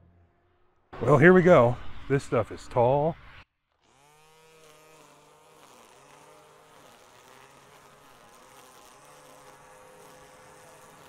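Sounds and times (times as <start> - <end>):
string trimmer motor buzzing: 3.7 - 11.0.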